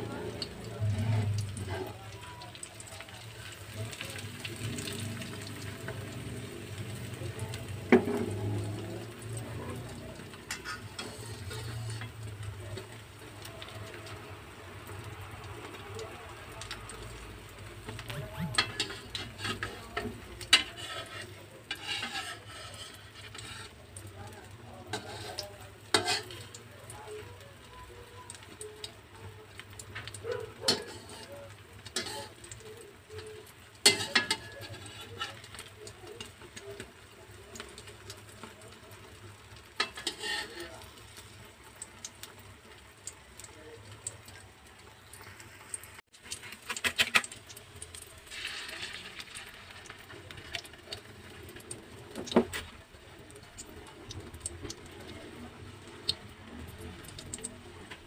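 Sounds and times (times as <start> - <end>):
eggs sizzling in oil: 0.0 - 58.0
metal spatula scraping a frying pan: 0.8 - 2.0, 7.9 - 13.0, 18.0 - 24.0, 24.8 - 26.6, 30.5 - 36.9, 39.7 - 41.4, 46.2 - 47.4, 48.3 - 50.8.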